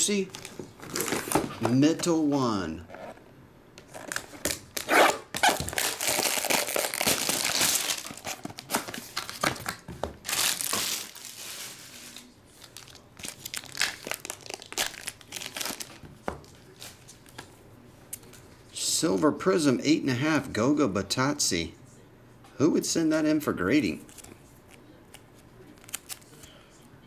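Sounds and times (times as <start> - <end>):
plastic wrapping crinkling and tearing: 0.2 - 1.6, 3.9 - 17.4, 25.6 - 26.4.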